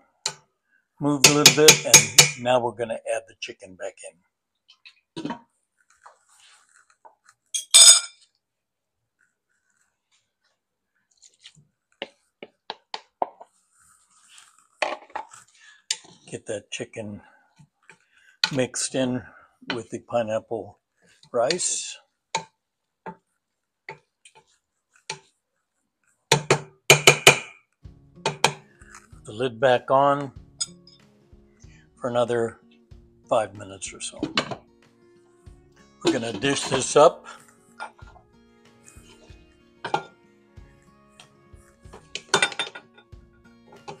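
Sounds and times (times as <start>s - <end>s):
wooden spoon knocking steel pot: 1.2s - 2.4s, 26.3s - 27.6s, 28.2s - 28.7s, 34.2s - 34.6s, 42.2s - 42.8s
metal clink on cooking pot: 42.2s - 42.8s.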